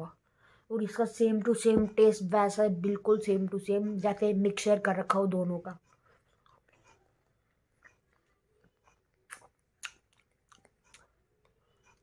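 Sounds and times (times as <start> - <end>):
wet mouth clicks sucking lollipop: 9.2 - 11.0.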